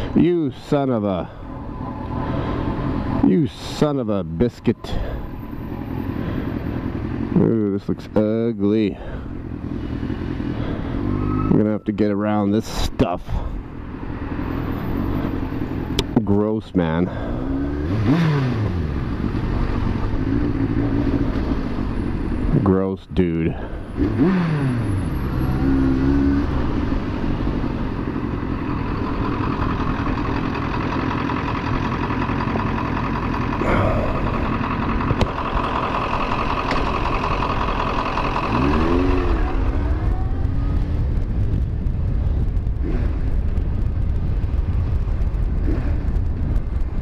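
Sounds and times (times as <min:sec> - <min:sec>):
motorcycle engine running: 0:17.1 - 0:22.6, 0:23.5 - 0:47.0.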